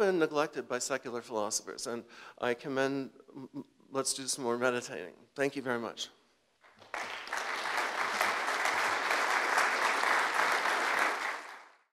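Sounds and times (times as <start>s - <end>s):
audience applauding: 6.7s - 11.9s.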